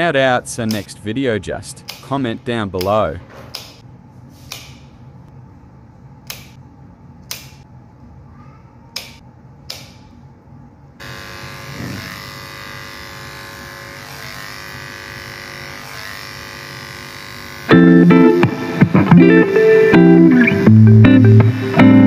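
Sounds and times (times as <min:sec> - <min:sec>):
electric hair clipper humming: 0:11.0 - 0:22.0.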